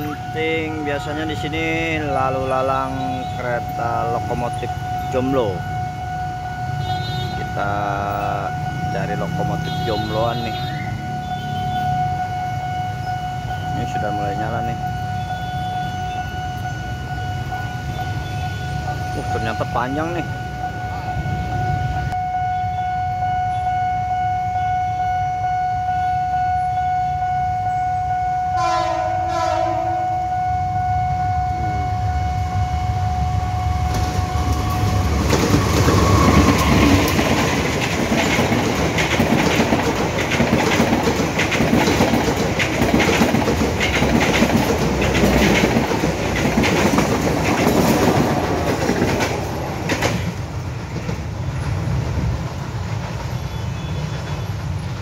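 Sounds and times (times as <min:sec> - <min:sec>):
locomotive horn: 0:00.0 - 0:50.4, 0:53.3 - 0:54.6
level crossing warning signal: 0:00.0 - 0:50.8
train wheels clattering over rails: 0:33.8 - 0:55.0.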